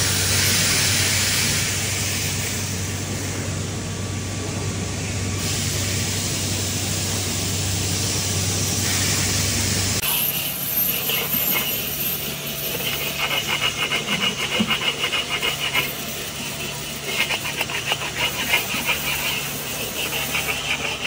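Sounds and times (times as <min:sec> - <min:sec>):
hands scrubbing a wok: 0:10.0 - 0:21.0.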